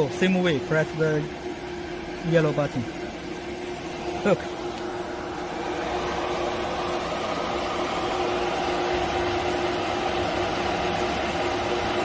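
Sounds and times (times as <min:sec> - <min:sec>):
router machine humming: 0:00.0 - 0:12.0.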